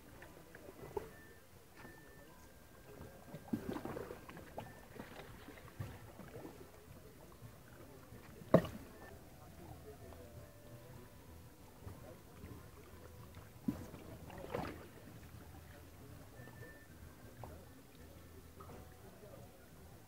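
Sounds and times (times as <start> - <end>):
water lapping against rocks: 2.9 - 9.2, 11.8 - 16.6.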